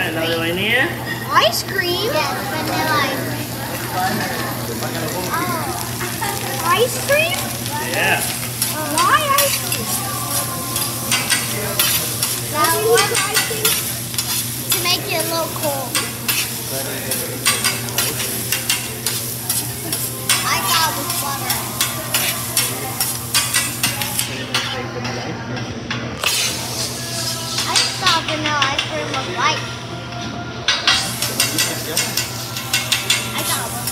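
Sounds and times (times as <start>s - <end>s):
rice sizzling on griddle: 0.0s - 24.7s, 26.2s - 29.5s, 30.9s - 33.9s
metal spatula scraping griddle: 8.2s - 15.3s, 16.0s - 24.3s, 26.2s - 28.2s.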